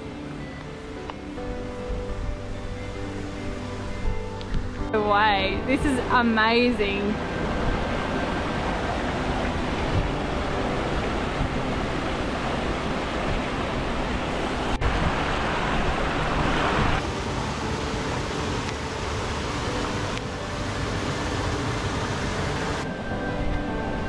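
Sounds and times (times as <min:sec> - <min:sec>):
creek water rushing over rocks: 0:07.2 - 0:23.5.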